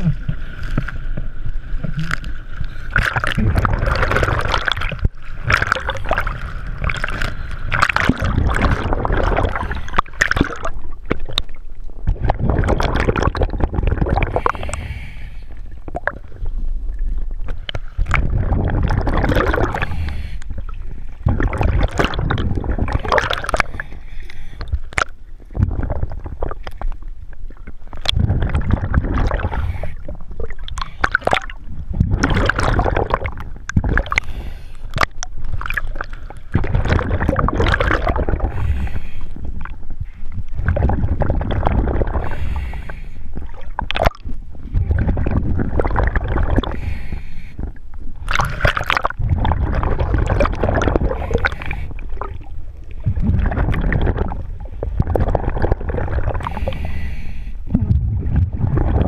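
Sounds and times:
water sloshing: 0.0s - 14.8s, 15.7s - 57.0s
diver's bubbles gurgling: 0.0s - 24.0s, 24.6s - 59.0s.

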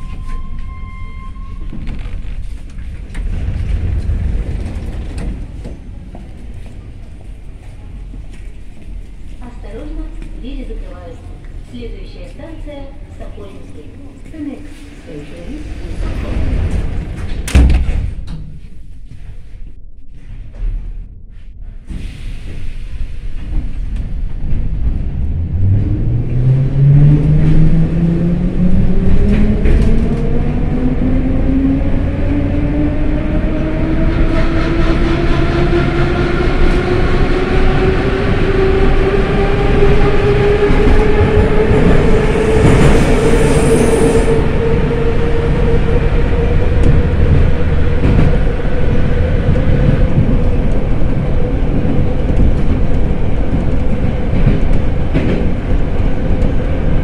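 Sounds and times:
wheels clattering on rails: 1.6s - 12.7s.

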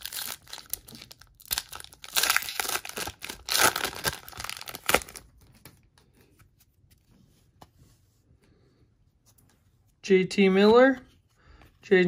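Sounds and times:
foil wrapper crinkling: 0.0s - 5.3s
cards rustling: 0.0s - 7.1s.

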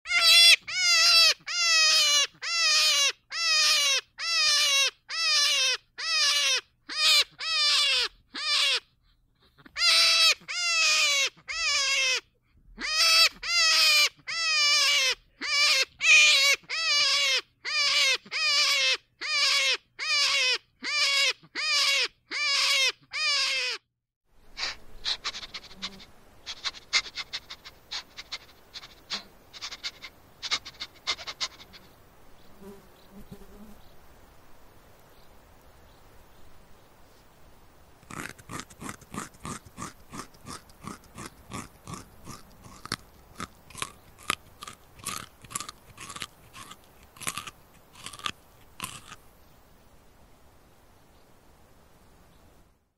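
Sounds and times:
faint crackling buzz: 24.3s - 52.9s.

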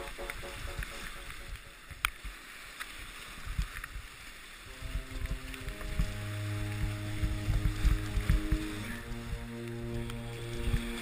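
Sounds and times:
held musical notes: 0.0s - 2.0s, 4.7s - 11.0s
rushing whitewater: 0.0s - 11.0s
low thumps: 4.8s - 10.9s.

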